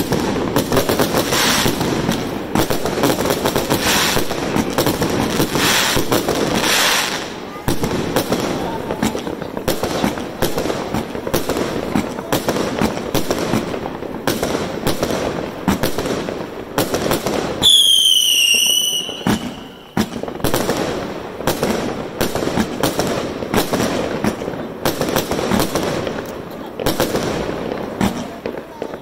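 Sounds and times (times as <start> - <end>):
fireworks cracking and popping: 0.0 - 29.0
firework whistle: 17.6 - 20.2.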